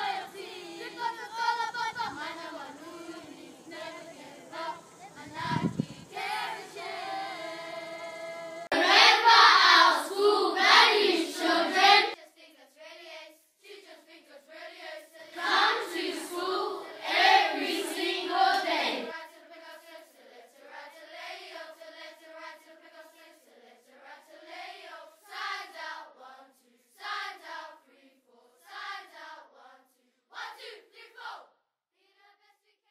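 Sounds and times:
children singing: 0.0 - 12.2, 14.7 - 20.0.

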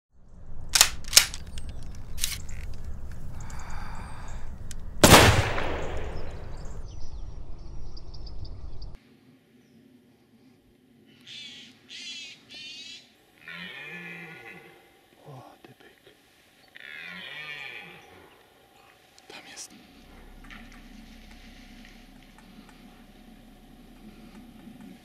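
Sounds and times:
low rumble: 0.2 - 9.0, 19.7 - 25.0
gunshots: 5.0 - 6.6.

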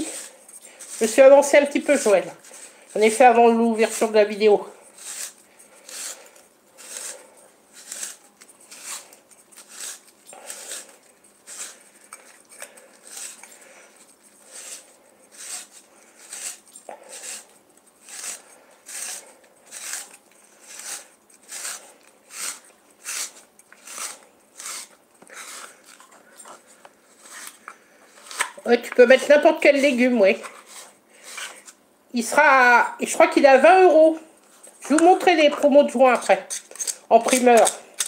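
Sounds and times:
spiralizer scraping crunch: 0.0 - 31.8.

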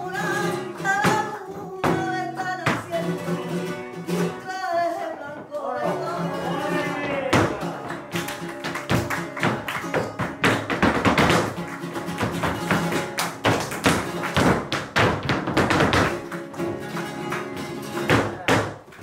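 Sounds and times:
flamenco guitar playing: 0.0 - 19.0
shoes stamping on stage: 7.0 - 19.0.

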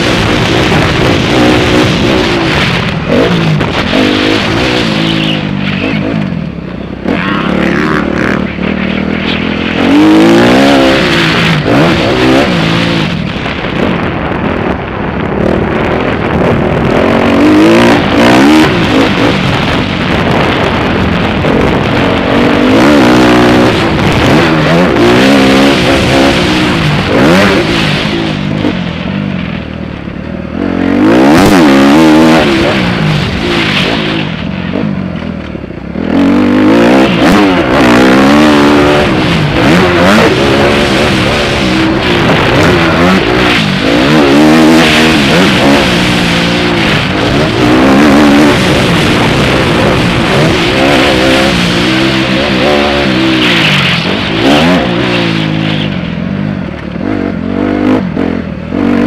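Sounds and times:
motocross bike engine revving: 0.0 - 29.4, 30.4 - 59.0.

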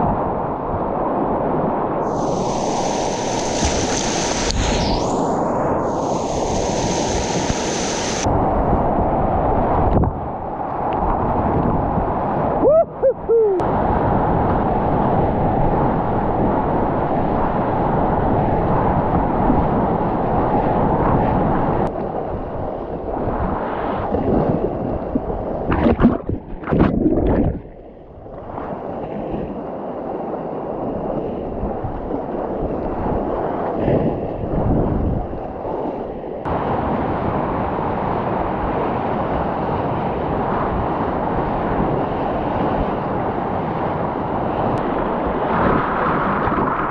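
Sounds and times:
whitewater rapids rushing: 2.1 - 8.3
choppy splashing: 25.6 - 27.9.

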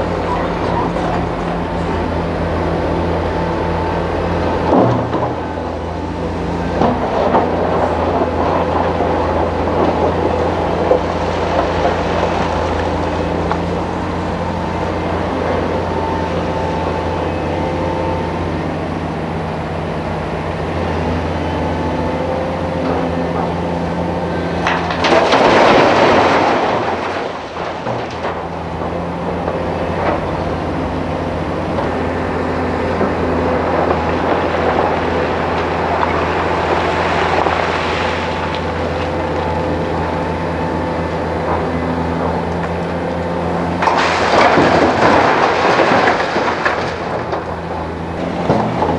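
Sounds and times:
diesel engine droning: 0.0 - 48.9
rock pouring into metal truck body: 24.7 - 28.3, 43.8 - 47.4.

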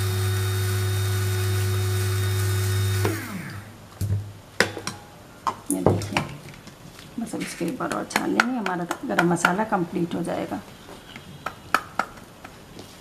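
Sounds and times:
electric spice grinder running: 0.0 - 3.7
motor winding down: 0.0 - 3.7.

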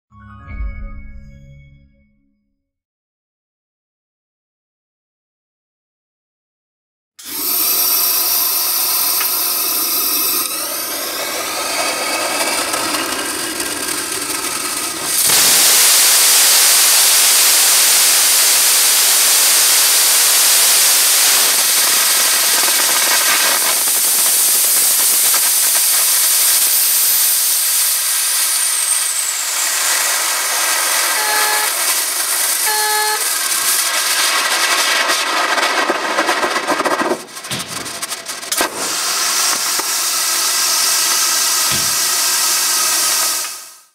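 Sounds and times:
rocket engine roaring hiss: 7.2 - 43.9
whistling hiss: 15.2 - 33.8
short beeps: 31.1 - 31.8, 32.6 - 33.3.

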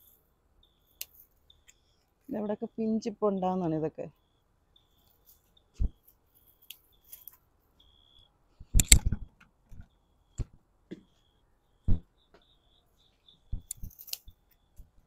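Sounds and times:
clicks and snips of picking: 8.8 - 9.1
snaps and knocks: 8.8 - 11.0.

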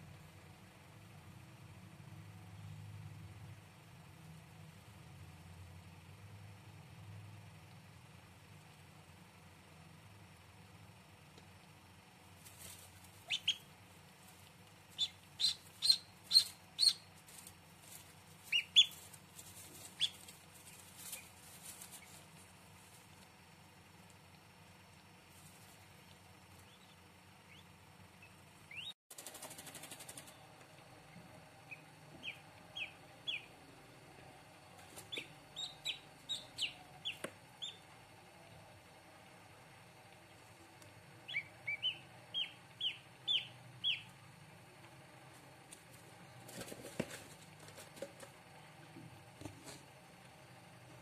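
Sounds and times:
ducklings peeping: 12.6 - 13.7, 14.9 - 17.5, 18.4 - 22.3, 26.0 - 29.0, 31.0 - 33.6, 34.8 - 38.0, 41.2 - 44.2.

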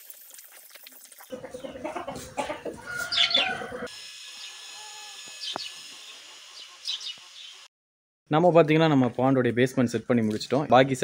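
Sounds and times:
chickens clucking: 1.3 - 3.9
high chirping calls: 3.0 - 3.7, 4.4 - 7.7.

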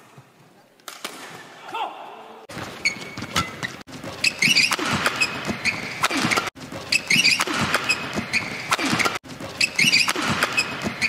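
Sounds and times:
shoes squeaking on court: 2.5 - 11.0
racket striking shuttlecock: 3.2 - 11.0.

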